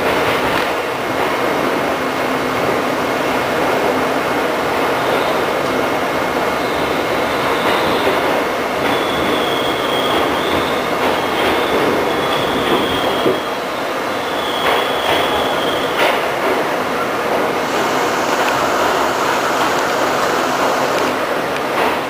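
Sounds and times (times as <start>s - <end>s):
train wheels rumbling on rail: 0.0s - 22.0s
high wheel squeal: 8.8s - 16.2s, 17.6s - 21.2s.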